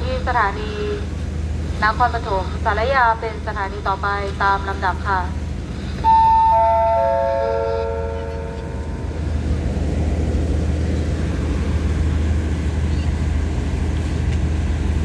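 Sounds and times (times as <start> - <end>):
train engine rumbling: 0.0 - 15.0
descending loudspeaker chime: 6.0 - 9.3.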